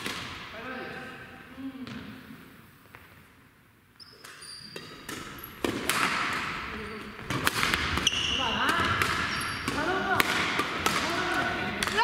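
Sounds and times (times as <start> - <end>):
shoes squeaking on gym floor: 4.0 - 5.6, 6.8 - 7.3, 8.0 - 9.7
racket hitting shuttlecock: 4.2 - 12.0.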